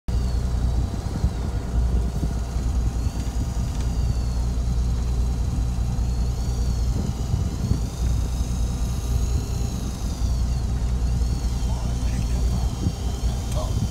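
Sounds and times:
boat engine idling: 0.1s - 13.9s
faint high whine: 0.1s - 13.9s.

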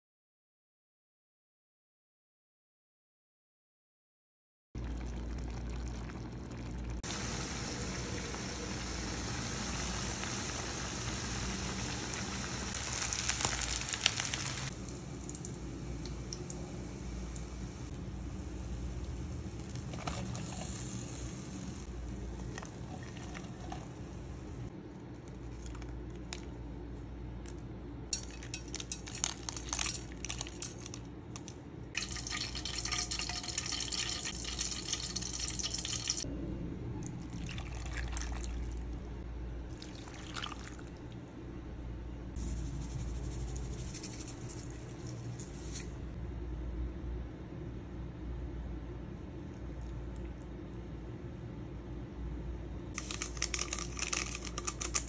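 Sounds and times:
steady hissing noise: 7.0s - 24.7s
steady low hum: 36.2s - 55.0s
peppercorns clicking into metal pot: 53.0s - 55.0s.

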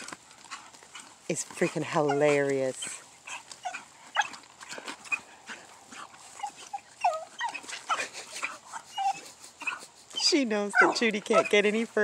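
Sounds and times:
dog whimpering: 1.6s - 4.4s, 5.1s - 11.8s.

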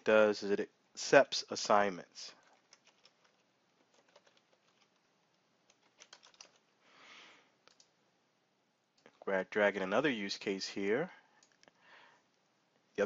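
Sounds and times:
soft hiss: 0.0s - 3.9s, 4.5s - 13.0s
keyboard typing: 2.4s - 5.1s, 5.7s - 6.6s, 7.6s - 8.0s.

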